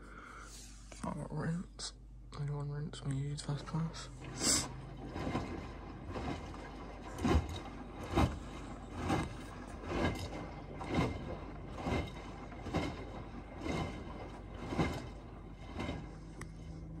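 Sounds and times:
low motor hum: 0.0s - 17.0s
washing machine drum sloshing laundry: 3.2s - 17.0s.

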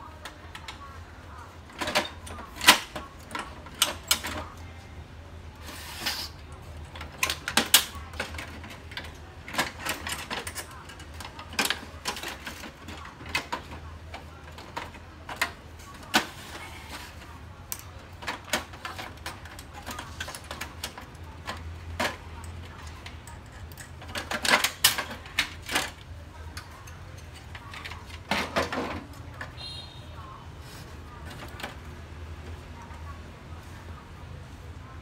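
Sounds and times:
plastic panels clicking and knocking: 6.9s - 29.6s.

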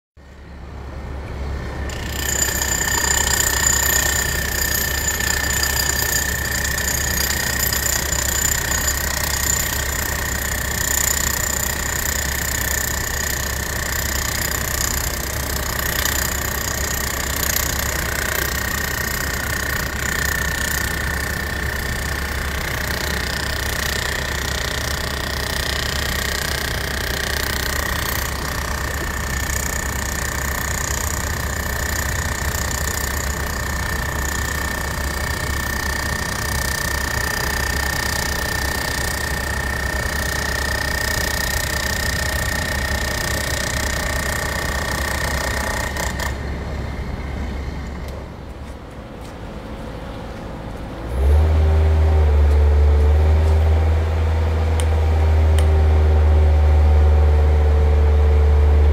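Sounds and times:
diesel engines running: 46.2s - 58.9s.

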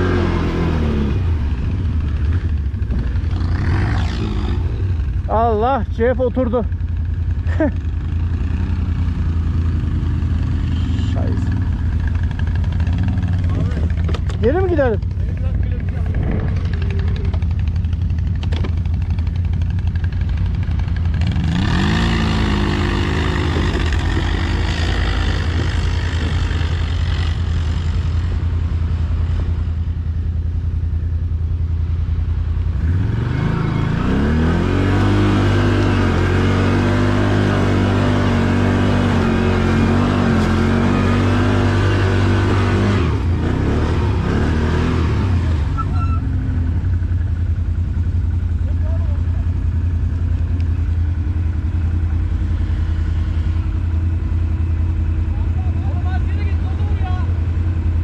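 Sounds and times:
atv engine revving: 0.0s - 30.0s, 31.3s - 58.0s
atv engine idling: 1.3s - 32.6s, 45.8s - 58.0s.

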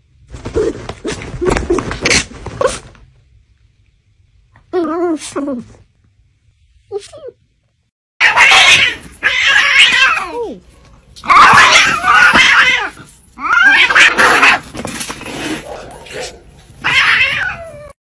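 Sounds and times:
cats fighting and crying: 0.3s - 3.0s, 8.2s - 18.0s.

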